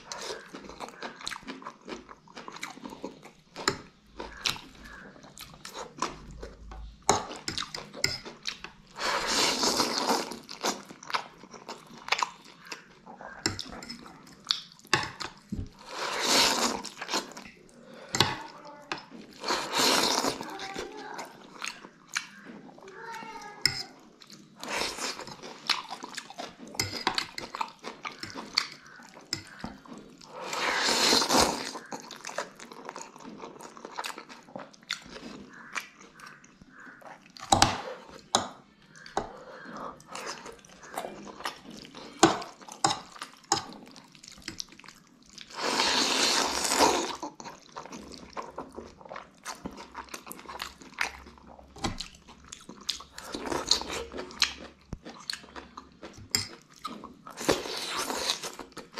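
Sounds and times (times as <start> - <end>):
wet chewing and smacking: 0.0 - 9.0, 9.6 - 15.9, 16.5 - 30.4, 31.1 - 45.6, 46.6 - 58.9
slurping noodles: 9.0 - 10.8, 15.8 - 17.4, 19.3 - 20.5, 30.3 - 31.9, 45.4 - 47.2, 57.3 - 58.6.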